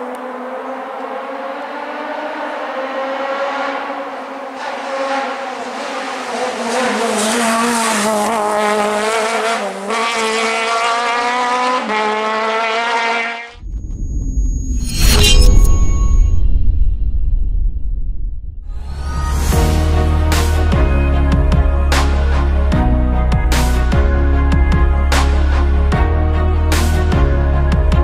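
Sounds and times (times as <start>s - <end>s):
rally car engine revving: 0.0s - 13.6s.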